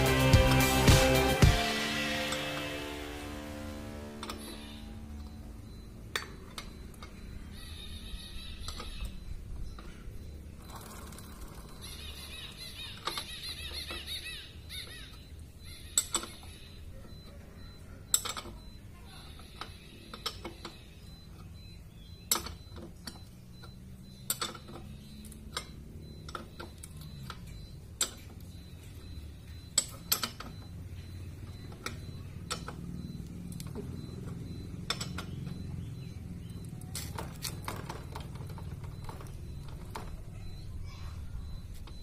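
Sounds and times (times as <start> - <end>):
metal clinks and taps: 18.1 - 18.6, 29.7 - 30.6, 33.5 - 35.6.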